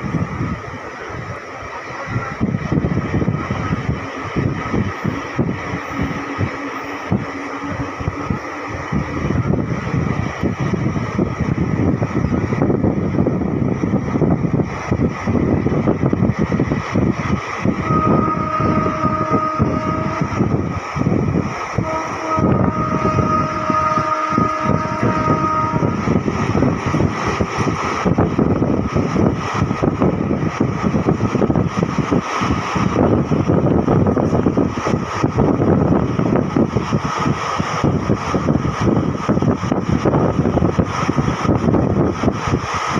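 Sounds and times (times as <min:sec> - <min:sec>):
train wheels rumbling on track: 0:00.0 - 0:42.9
train horn blasts: 0:17.8 - 0:20.7, 0:21.7 - 0:26.3.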